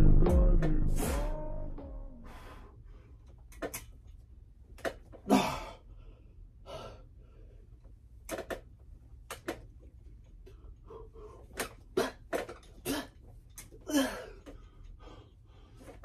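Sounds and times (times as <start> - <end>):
man breathing hard with exertion: 2.2 - 3.3, 5.2 - 7.8, 10.4 - 13.2, 13.8 - 16.0.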